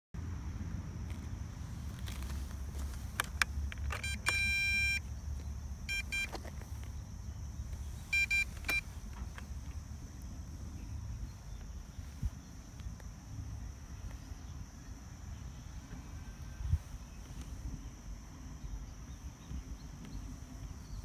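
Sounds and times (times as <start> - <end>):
steady low rumble: 0.2 - 21.0
radio transmitter electronic beeps: 3.9 - 5.1, 5.9 - 6.4, 8.1 - 8.8.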